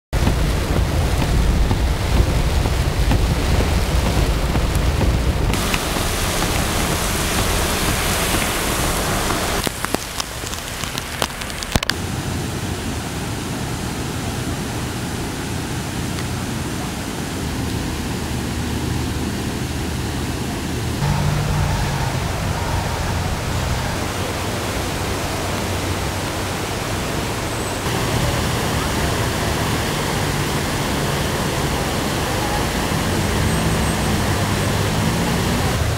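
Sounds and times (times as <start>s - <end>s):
low rumble: 0.1s - 9.6s, 20.9s - 25.4s
floodwater rushing: 0.1s - 35.9s
heavy rain: 0.1s - 35.9s
wind: 0.1s - 35.9s.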